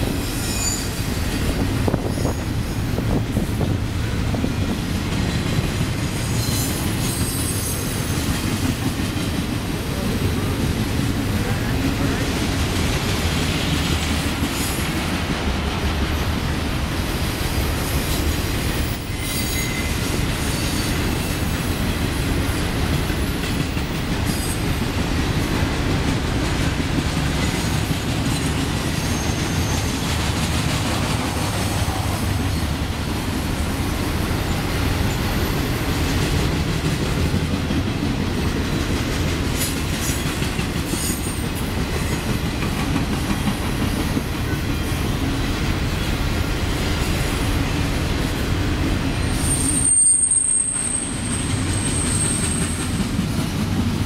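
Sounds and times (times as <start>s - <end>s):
high wheel squeals: 0.2s - 1.3s, 1.9s - 3.0s, 6.2s - 8.2s, 18.8s - 21.5s, 28.4s - 30.0s, 49.2s - 53.0s.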